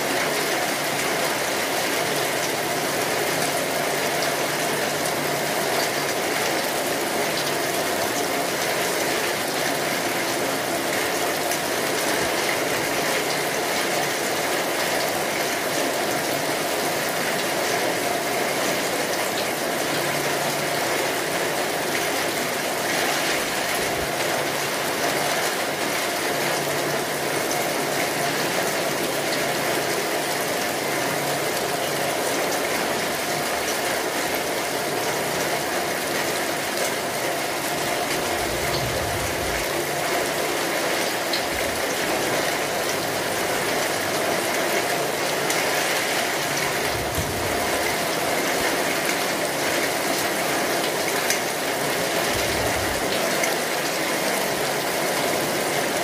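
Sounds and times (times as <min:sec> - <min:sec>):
heavy rain: 0:00.0 - 0:56.0
short low rumble: 0:38.2 - 0:39.9.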